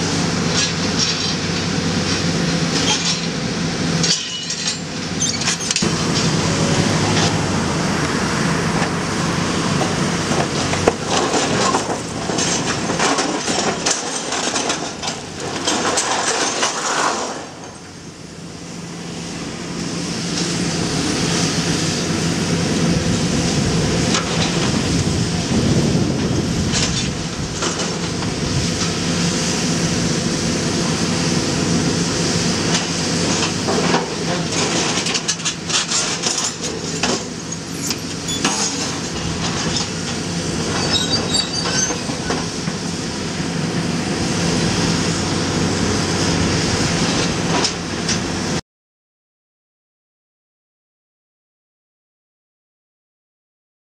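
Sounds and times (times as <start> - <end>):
excavator diesel engine: 0.0 - 48.6
metal clanks and scraping: 0.5 - 3.4, 4.0 - 6.4, 9.8 - 17.9, 26.7 - 29.0, 32.7 - 42.8.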